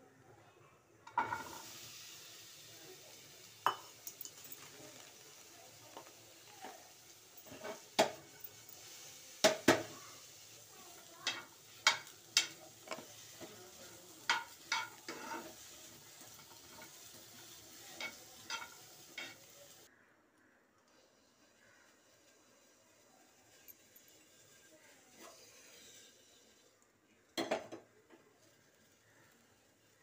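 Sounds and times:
food sizzling in a frying pan: 0:01.0 - 0:19.9, 0:21.0 - 0:30.0
spoon clacking against pan: 0:03.6 - 0:05.1, 0:05.9 - 0:08.8, 0:09.4 - 0:10.0, 0:11.2 - 0:19.8.

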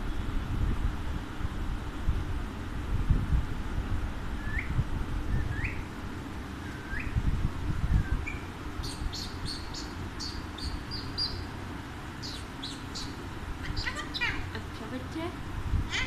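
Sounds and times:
low background rumble: 0:00.0 - 0:16.0
parakeets chirping: 0:08.2 - 0:11.6, 0:12.2 - 0:14.7.

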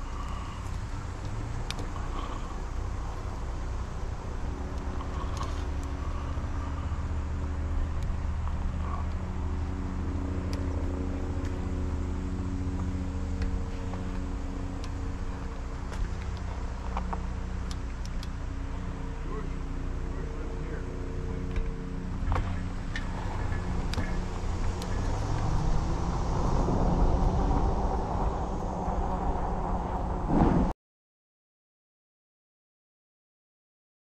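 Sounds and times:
steady motor hum: 0:00.0 - 0:30.3
rumble of tyres and wind: 0:00.0 - 0:30.7
small clicks: 0:00.6 - 0:01.9.

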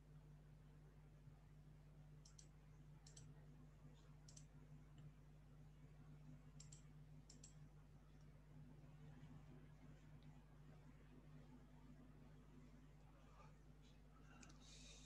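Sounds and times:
low steady hum: 0:00.0 - 0:15.0
computer mouse clicks: 0:02.2 - 0:03.4, 0:04.2 - 0:05.1, 0:06.5 - 0:07.6, 0:14.4 - 0:14.6.

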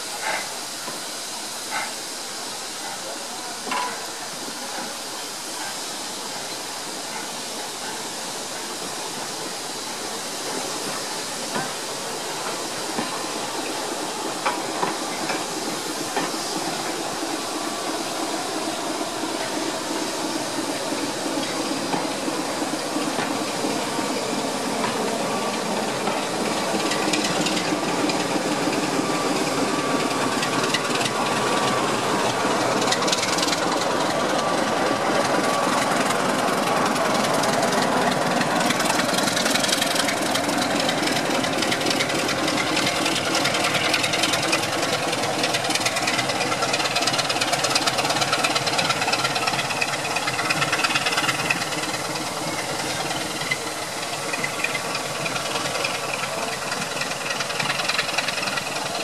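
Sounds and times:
steam hissing: 0:00.0 - 0:59.0
steam locomotive pulling away: 0:00.0 - 0:59.0
wheels clicking over rail joints: 0:10.8 - 0:17.3, 0:19.1 - 0:59.0.

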